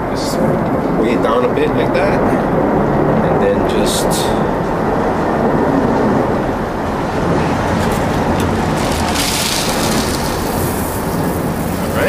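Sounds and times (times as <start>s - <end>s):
low outdoor rumble: 0.0s - 12.0s
cat litter pouring: 8.6s - 12.0s.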